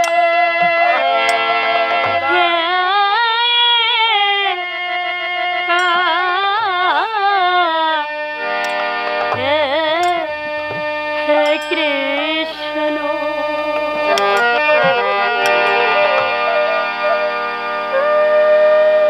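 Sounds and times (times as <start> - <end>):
light percussion strikes: 0.0 - 2.8, 5.7 - 6.9, 8.4 - 16.7
harmonium chords: 0.0 - 19.0
woman singing: 2.2 - 8.1, 9.4 - 10.5, 11.2 - 13.7.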